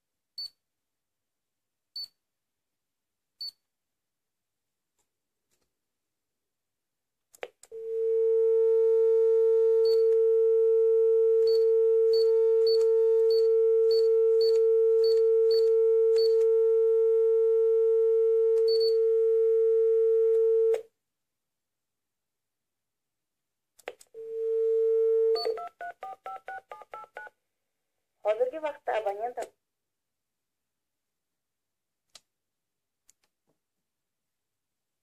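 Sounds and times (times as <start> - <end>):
phone dial tone: 24.2 - 27.3.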